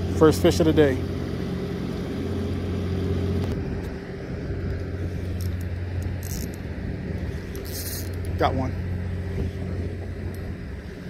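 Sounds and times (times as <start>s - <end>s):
low engine hum: 0.0s - 11.0s.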